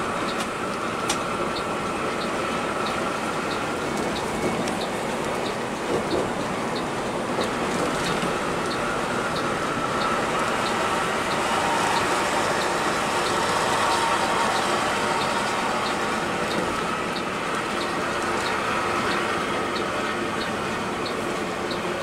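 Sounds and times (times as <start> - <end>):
coach road and engine noise: 0.0 - 22.0
light repeating tick: 0.2 - 11.4, 12.0 - 21.9.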